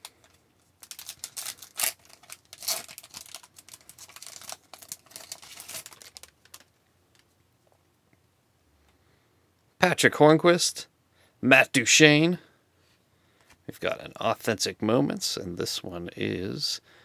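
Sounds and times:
wrapper crinkling and tearing: 0.0s - 7.3s.

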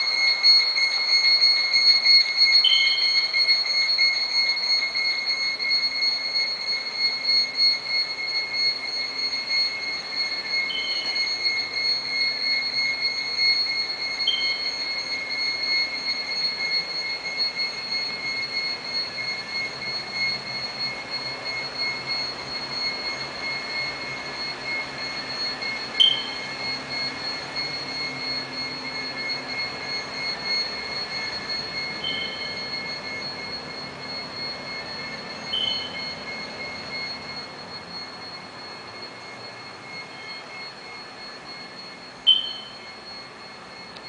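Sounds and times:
high-pitched electronic whine: 0.0s - 44.0s
short high chirps: 26.0s - 26.4s, 42.3s - 42.8s.

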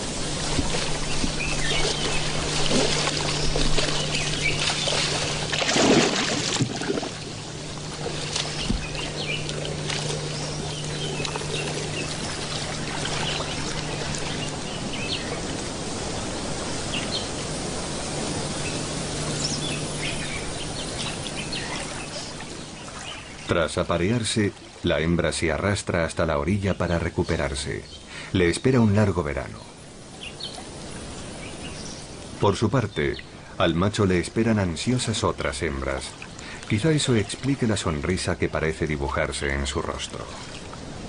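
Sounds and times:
bird calls: 0.0s - 17.5s, 18.3s - 23.7s, 26.6s - 40.8s
water splashing and sloshing: 0.0s - 25.7s, 33.4s - 41.0s.

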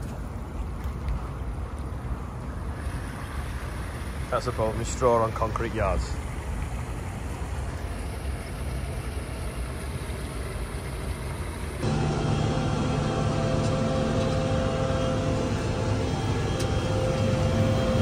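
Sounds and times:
tractor engine drone from cab: 9.3s - 18.0s
low rumbling: 11.8s - 18.0s.

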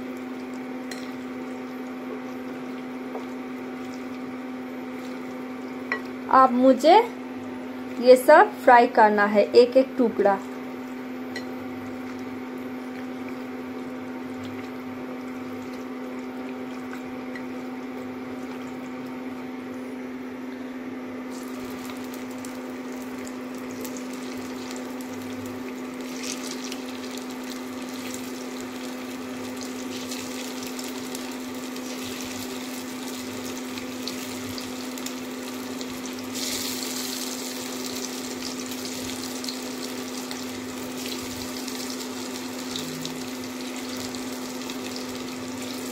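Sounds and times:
cooktop hum: 0.0s - 45.9s
oil sizzling in a wok: 21.3s - 45.9s.

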